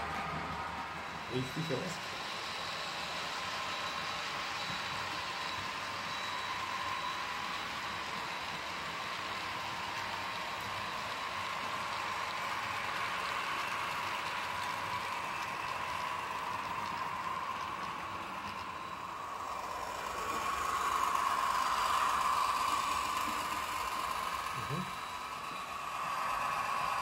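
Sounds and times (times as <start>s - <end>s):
model train motor hum: 0.0s - 27.0s
model train wheels rattling on track: 6.7s - 27.0s.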